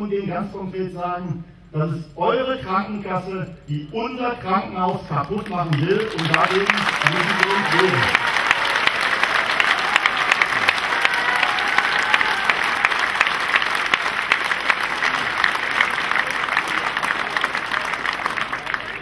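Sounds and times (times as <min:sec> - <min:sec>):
crowd applauding: 0:05.2 - 0:19.0.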